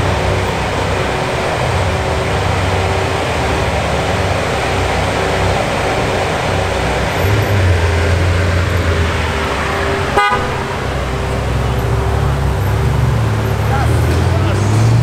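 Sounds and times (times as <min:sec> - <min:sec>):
car engine running low: 0:00.0 - 0:15.0
car horn toot: 0:10.1 - 0:11.9.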